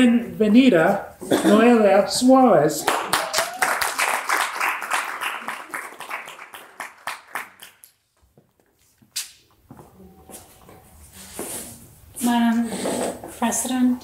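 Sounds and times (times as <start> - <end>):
audience applauding: 2.8 - 7.9.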